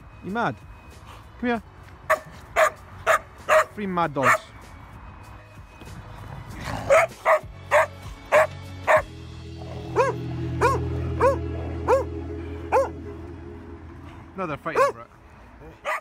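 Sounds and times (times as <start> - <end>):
soft background music: 0.0 - 15.6
dog barking: 2.1 - 4.5, 6.9 - 9.1, 10.0 - 12.0, 14.8 - 15.0.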